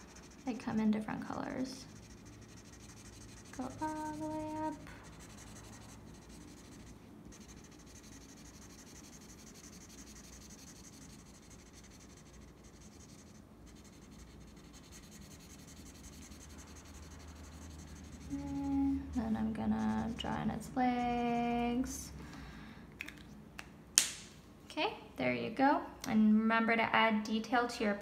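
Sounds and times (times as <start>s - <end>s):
marker scribbling on paper: 0.0s - 21.6s.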